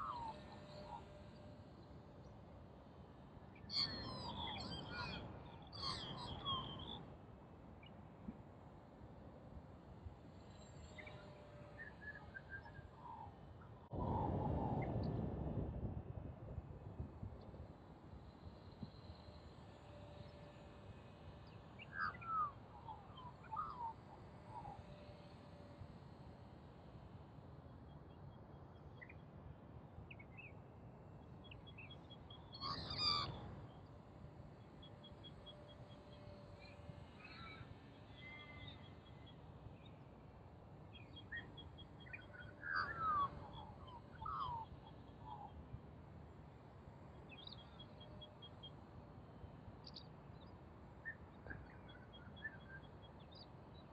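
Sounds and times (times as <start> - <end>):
light wind noise: 9.6 - 24.7.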